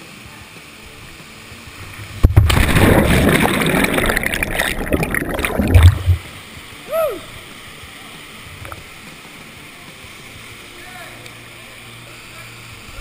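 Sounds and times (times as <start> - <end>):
underwater rushing and bubbling: 1.8 - 6.5
splash into water: 2.2 - 6.2.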